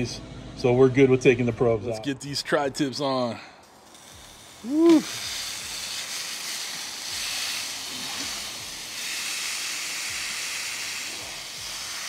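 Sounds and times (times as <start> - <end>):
meat sizzling on a grill: 3.7 - 12.0.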